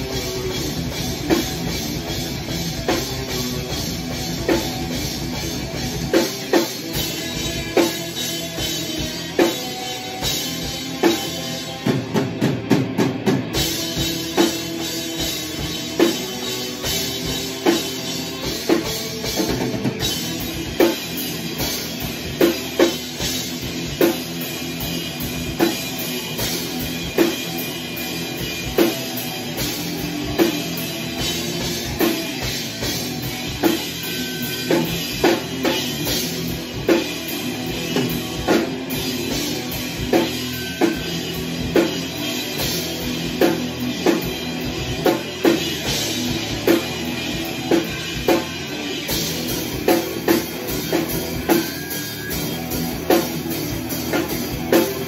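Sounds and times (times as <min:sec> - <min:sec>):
rock band playing metal: 0:00.0 - 0:55.0.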